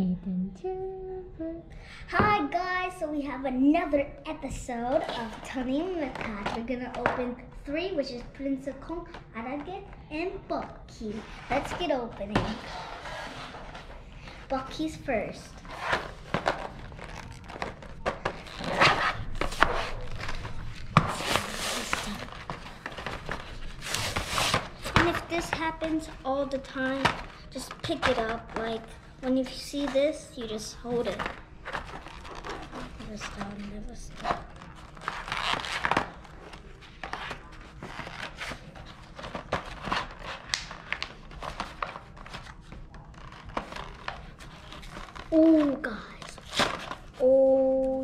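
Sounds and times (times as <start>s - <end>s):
plastic blister crackling: 15.5s - 30.0s, 30.9s - 47.3s
toy packaging rustling: 15.6s - 47.4s
cardboard tearing: 15.7s - 25.5s, 31.2s - 33.4s, 34.2s - 47.1s.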